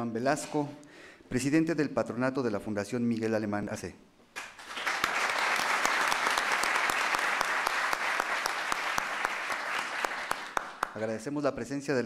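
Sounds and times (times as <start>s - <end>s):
audience applauding: 4.4s - 11.1s.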